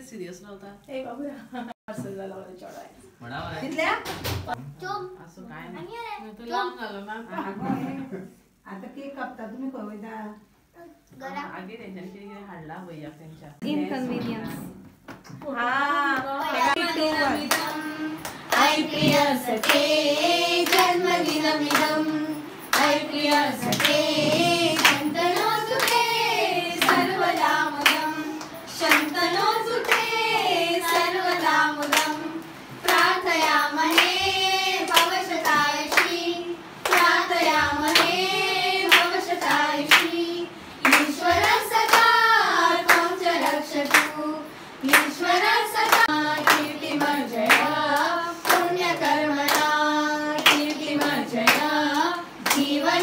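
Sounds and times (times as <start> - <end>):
group singing birthday song: 7.3 - 8.5, 13.6 - 53.0
people clapping in time: 17.4 - 30.2, 34.8 - 36.2, 36.8 - 38.2, 38.8 - 40.2, 40.8 - 42.2, 44.9 - 52.8.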